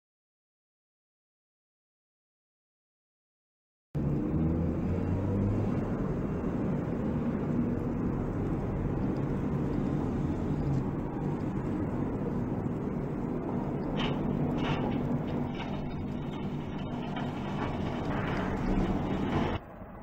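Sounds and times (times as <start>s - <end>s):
vehicle engine running: 4.0s - 19.6s.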